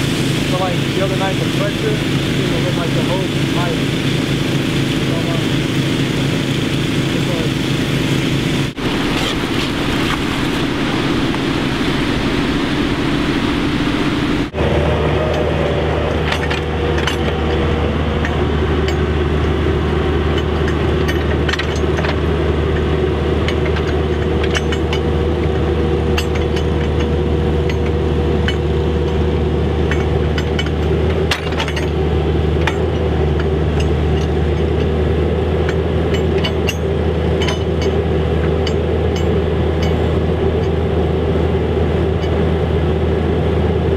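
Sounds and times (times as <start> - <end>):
diesel engine running: 0.0 - 43.9.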